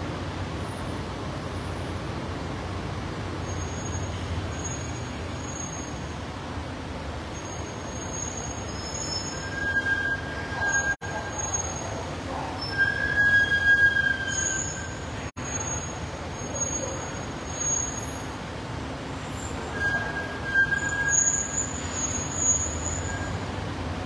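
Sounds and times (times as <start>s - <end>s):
high-pitched squeals: 7.4s - 18.2s, 19.4s - 23.5s.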